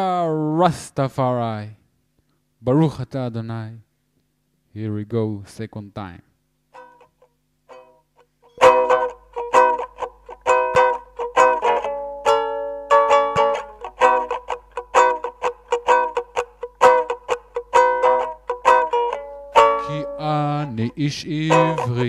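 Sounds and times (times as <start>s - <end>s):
plucked string chords: 6.8s - 22.0s.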